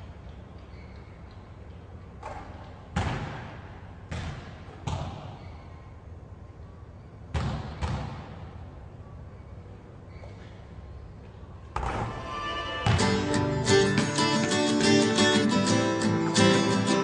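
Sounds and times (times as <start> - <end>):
basketball bouncing on court floor: 2.2 - 5.6, 7.3 - 8.4, 12.8 - 13.2.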